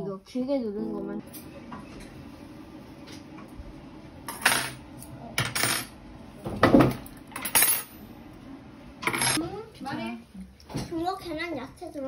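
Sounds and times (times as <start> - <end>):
dishes and cutlery clinking: 9.0 - 9.4.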